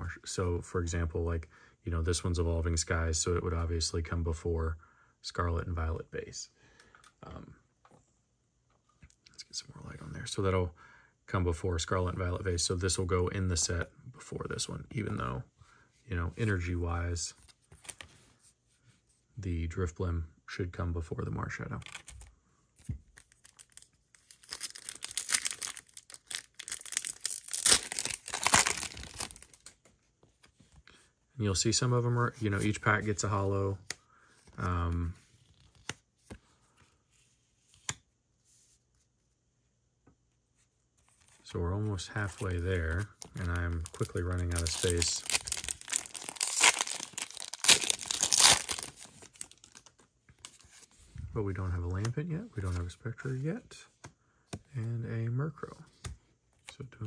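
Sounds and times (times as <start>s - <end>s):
wrapper tearing and crinkling: 23.2s - 29.6s, 42.9s - 49.9s.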